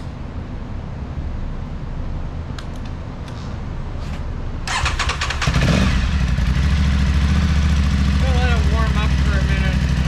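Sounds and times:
motorcycle engine starting and idling: 4.6 - 10.0.

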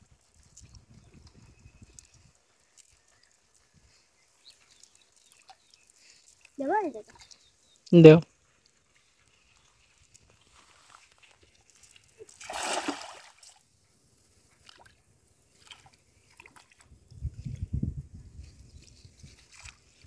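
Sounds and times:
net splashing into water: 12.2 - 13.6.

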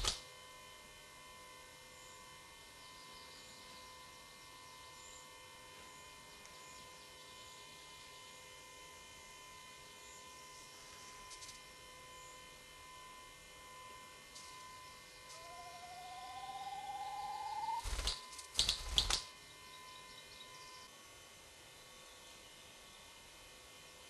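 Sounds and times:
electrical hum and hiss: 0.0 - 24.0
rising whine: 9.4 - 20.9
faint high chirps: 9.8 - 20.9.

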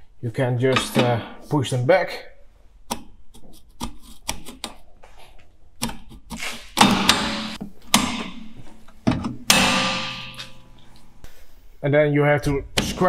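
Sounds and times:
loud scraping metal clanks: 9.5 - 10.8.

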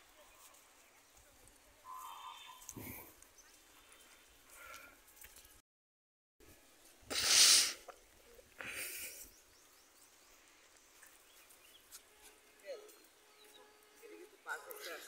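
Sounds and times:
breath-like bursts: 7.1 - 7.9.

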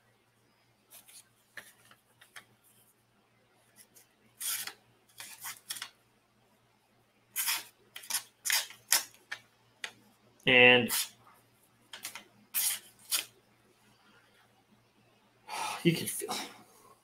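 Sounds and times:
knife blade slicing paper: 4.4 - 5.8, 7.4 - 9.1, 10.9 - 11.1, 12.0 - 13.3.

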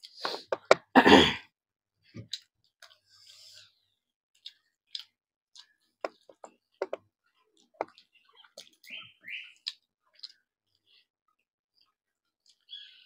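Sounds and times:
wet chewing and lip smacks: 2.3 - 3.0, 4.4 - 7.0, 7.6 - 9.0, 9.6 - 11.1.

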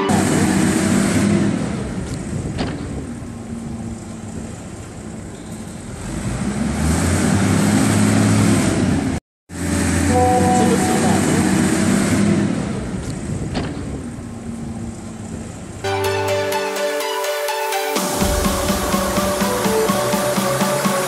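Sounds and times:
wheel loader diesel engine revving: 0.0 - 3.0, 5.8 - 13.3.

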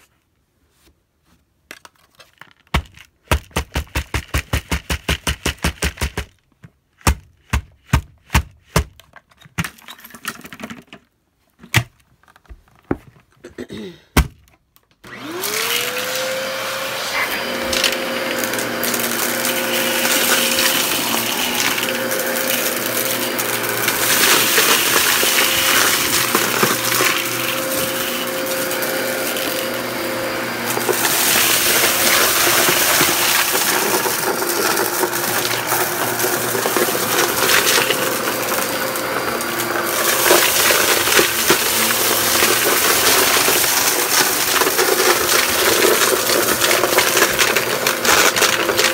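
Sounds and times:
vacuum cleaner motor whine: 15.0 - 48.9
debris rattling through vacuum: 15.1 - 48.9.

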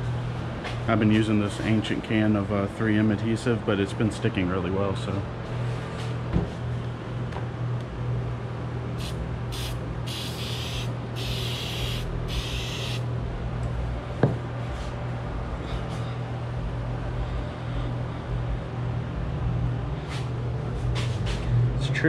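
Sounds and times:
steady low hum: 0.0 - 22.0
aerosol can hissing: 9.0 - 13.0.

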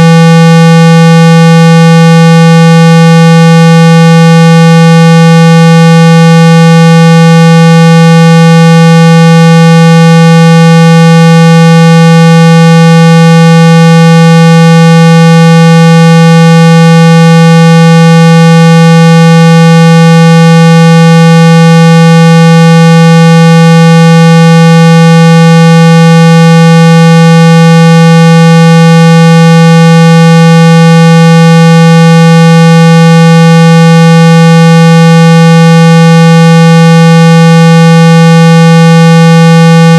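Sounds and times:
loud low steady tone: 0.0 - 29.8.

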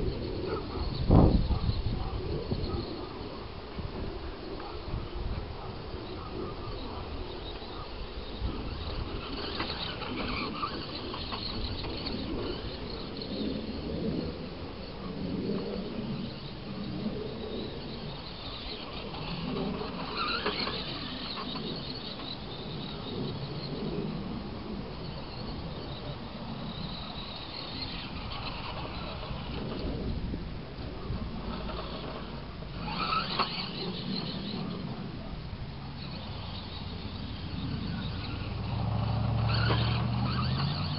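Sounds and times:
toy truck electric motor whining: 0.0 - 3.3, 6.1 - 40.9
wind rumbling on microphone: 0.0 - 40.9.

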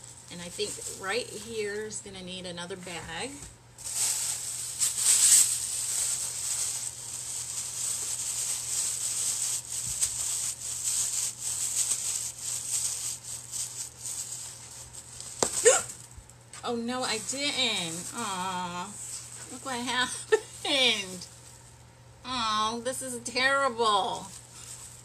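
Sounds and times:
plastic bag crinkling: 0.0 - 2.0, 3.8 - 21.8.

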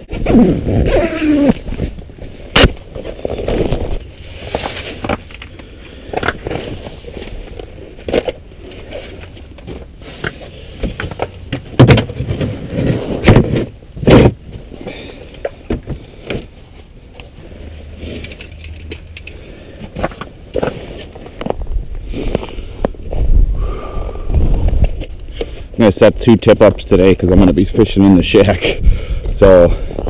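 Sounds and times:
heavy thumps: 9.7 - 14.7.

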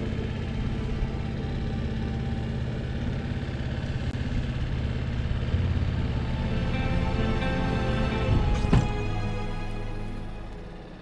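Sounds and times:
outboard motor running: 0.0 - 9.8.

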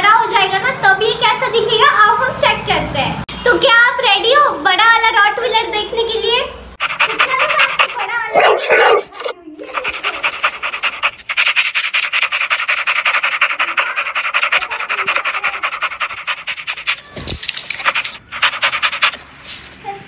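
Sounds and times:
dog panting: 6.8 - 19.4.

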